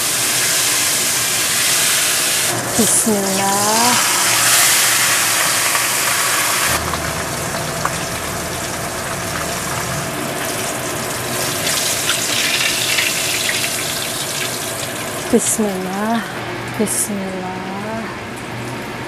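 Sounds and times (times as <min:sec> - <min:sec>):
fish deep-frying in oil: 0:00.0 - 0:16.2
low hum: 0:02.5 - 0:14.0.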